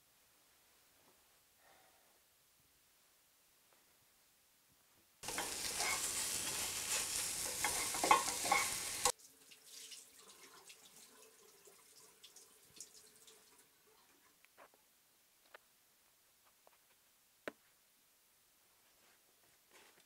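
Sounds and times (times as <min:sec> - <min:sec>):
food sizzling in a pan: 0:05.2 - 0:13.3.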